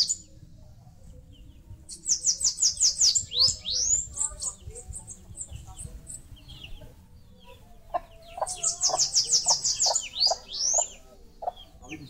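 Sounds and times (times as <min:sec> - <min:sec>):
songbirds chirping: 0:00.0 - 0:12.0
hen clucking: 0:07.4 - 0:12.0.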